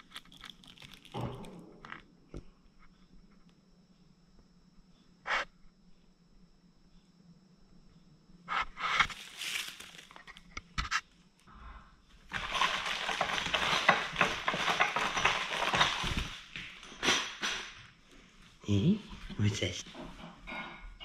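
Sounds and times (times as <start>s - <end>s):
plastic and cardboard crinkling: 0.0s - 1.6s, 9.0s - 10.8s, 12.2s - 17.4s.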